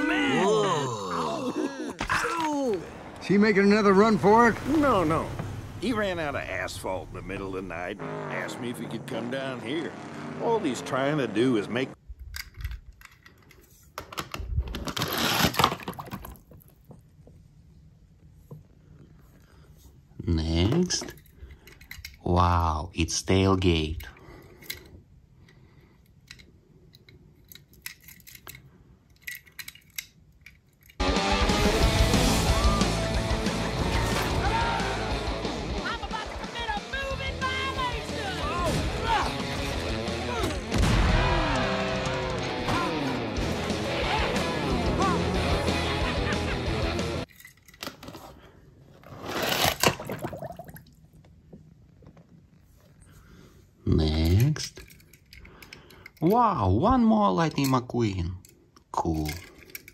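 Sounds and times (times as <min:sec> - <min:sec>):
film soundtrack music: 0:31.0 - 0:47.2
water sloshing: 0:49.6 - 0:51.2.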